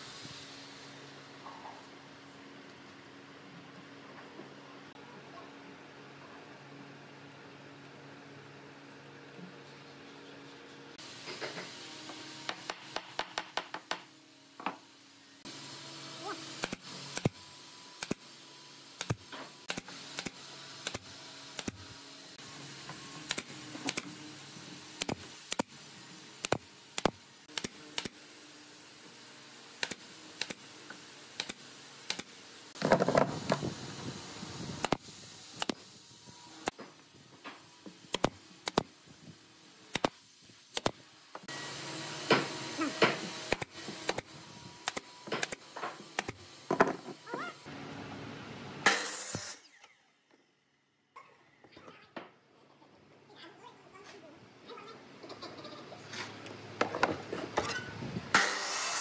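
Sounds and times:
nail gun firing: 16.6s - 17.4s, 19.0s - 21.8s, 23.2s - 24.1s, 25.0s - 25.7s, 29.8s - 30.6s, 31.4s - 33.6s, 38.1s - 38.9s, 39.9s - 41.0s, 42.3s - 46.9s, 58.3s - 59.0s.

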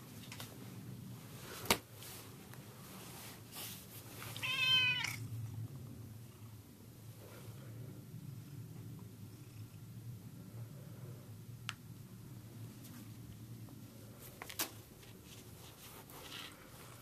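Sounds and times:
cat meowing: 4.4s - 5.2s.

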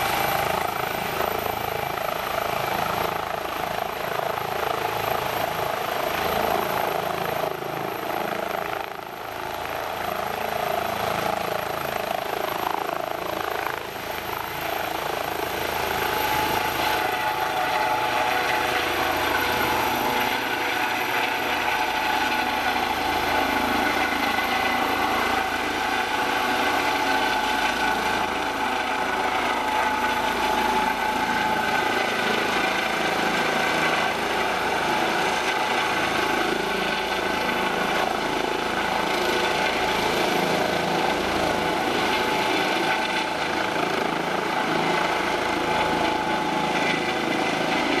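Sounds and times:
helicopter turbine and rotor: 0.0s - 48.0s
high turbine whine: 0.0s - 48.0s.

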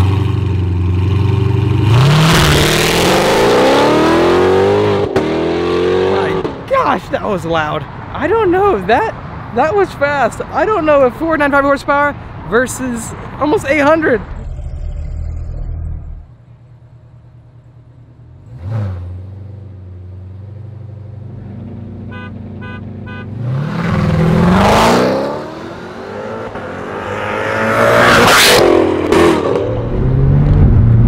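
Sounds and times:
car engine revving: 0.0s - 6.7s, 18.4s - 31.0s.

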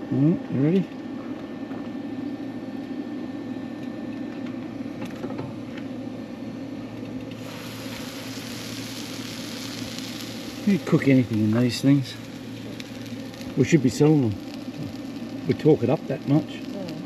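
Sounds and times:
steady hiss: 7.3s - 17.0s.

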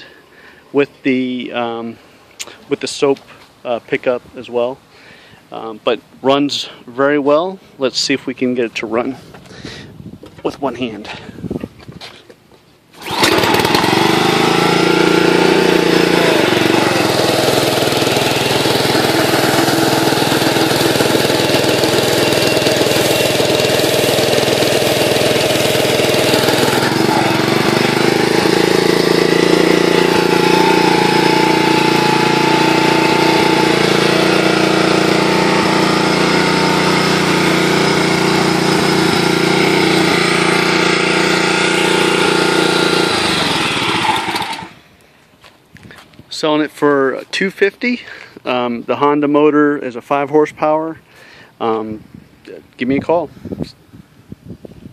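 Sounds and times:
pressure washer engine pull-started: 12.9s - 44.8s
pressure washer engine running: 13.0s - 44.8s.

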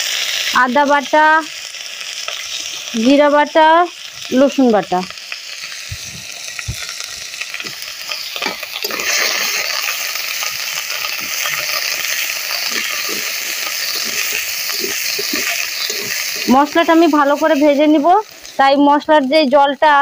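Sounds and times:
pastes sizzling in hot oil: 0.0s - 20.0s
metal spatula scraping pan: 11.2s - 17.7s.

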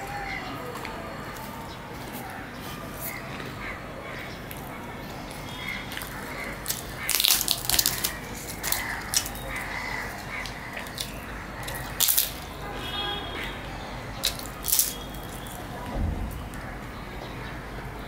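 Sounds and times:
crow calling: 5.3s - 15.5s
crisp fried bread tearing: 6.0s - 12.5s, 14.2s - 15.7s.

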